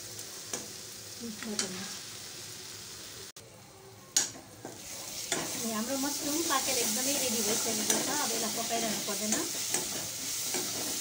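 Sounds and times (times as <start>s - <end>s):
mushrooms sizzling in metal pan: 0.0s - 3.4s, 4.0s - 11.0s
metal spoon scraping pan: 6.8s - 11.0s.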